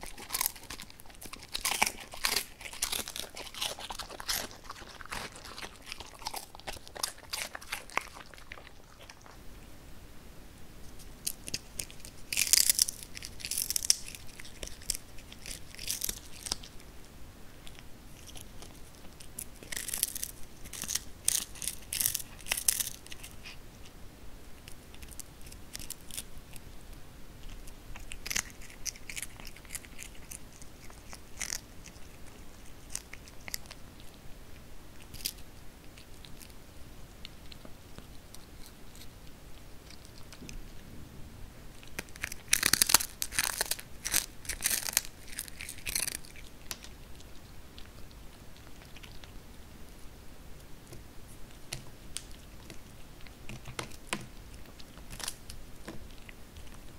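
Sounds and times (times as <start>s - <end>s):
kitten crunching fish: 0.0s - 9.8s, 10.8s - 40.9s, 41.6s - 56.9s.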